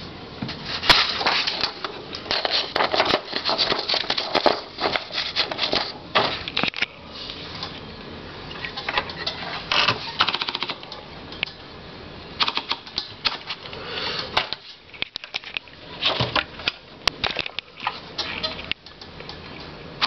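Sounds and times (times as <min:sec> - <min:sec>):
rapid ratchet clicks: 0:09.7 - 0:10.8, 0:12.4 - 0:13.1
typewriter mechanism clicking: 0:09.7 - 0:10.9, 0:12.4 - 0:13.4.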